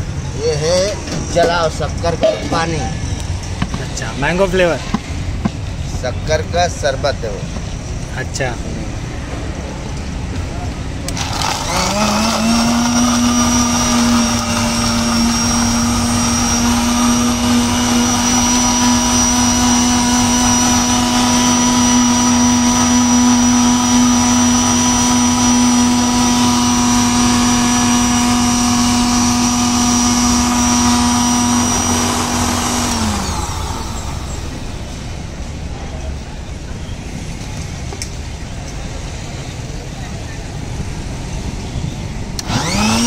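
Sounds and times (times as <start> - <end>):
electric blender motor whine: 11.1 - 34.8, 42.4 - 43.0.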